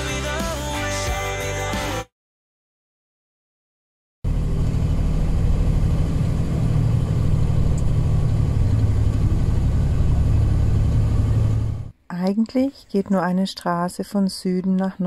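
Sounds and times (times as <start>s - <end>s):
diesel engine droning: 4.3s - 11.9s.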